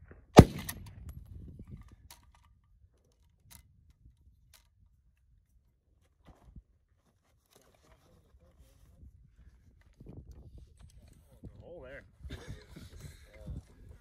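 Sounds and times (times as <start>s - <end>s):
suppressed rifle shot: 0.1s - 1.1s.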